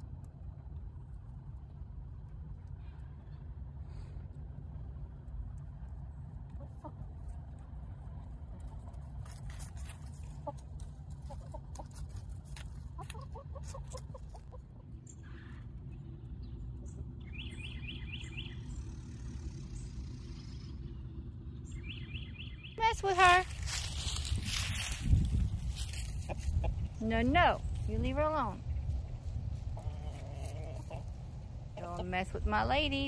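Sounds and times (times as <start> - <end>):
steady low rumble: 0.0 - 33.0
hens clucking softly: 6.4 - 7.6, 9.8 - 16.2, 25.8 - 27.0, 28.8 - 32.2
small bird chirping: 16.1 - 23.6.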